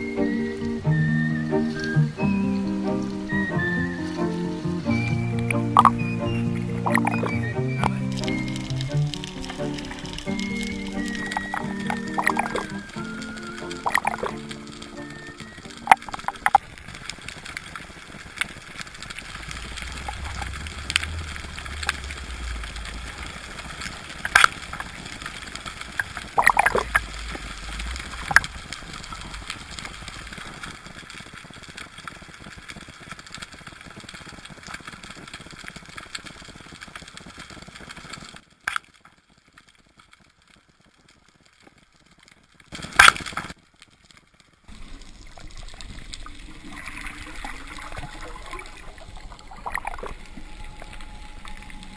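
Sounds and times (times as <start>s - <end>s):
steady underwater hiss: 0.0s - 38.3s, 44.7s - 51.9s
sharp clicks: 6.8s - 31.8s.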